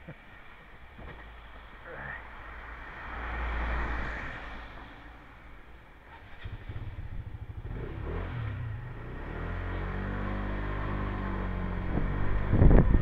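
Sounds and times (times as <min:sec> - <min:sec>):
motorbike engine revving: 0:06.1 - 0:13.0.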